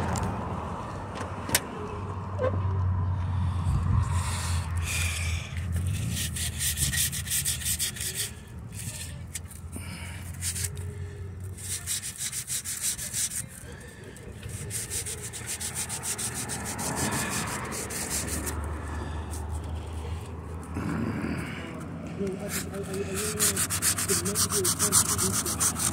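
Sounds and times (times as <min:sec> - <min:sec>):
rapid rubbing and scratching: 0:04.8 - 0:20.8, 0:21.7 - 0:25.9.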